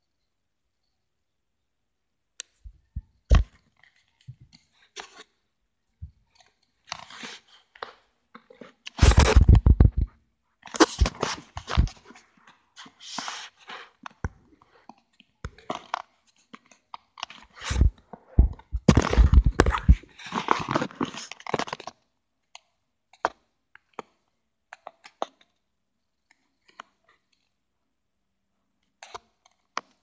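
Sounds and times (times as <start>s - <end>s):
phone handling rubs and thumps: 10.8s - 12.2s, 17.5s - 21.2s.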